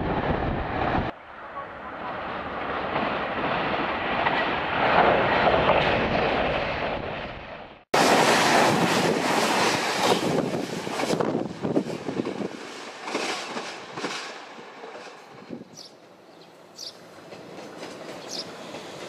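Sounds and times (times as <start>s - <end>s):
diesel train passing: 0.0s - 19.0s.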